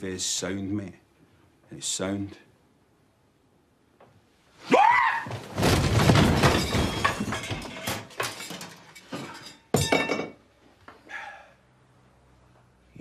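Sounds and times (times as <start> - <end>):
man crying out: 4.7 - 5.3
crash and clatter of clothes airer: 5.0 - 10.4
knocks and rattles: 5.3 - 10.4.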